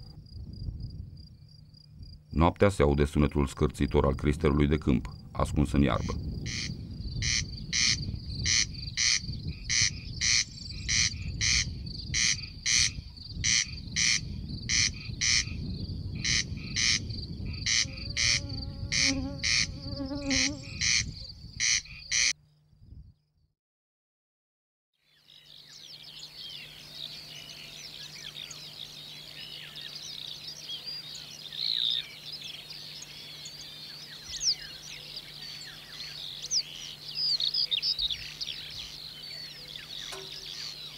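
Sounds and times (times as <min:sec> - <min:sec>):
chorus of bird chirps: 0:05.9 - 0:22.4, 0:25.0 - 0:40.9
corncrake rasping call: 0:06.5 - 0:15.6, 0:17.7 - 0:22.3.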